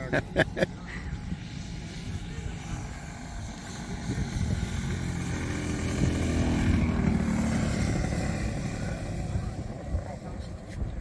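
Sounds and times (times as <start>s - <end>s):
model airplane engine passing: 0.0s - 11.0s.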